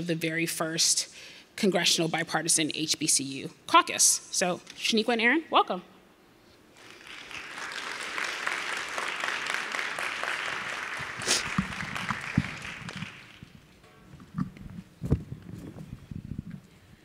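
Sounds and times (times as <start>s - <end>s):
audience applauding: 6.8s - 13.6s.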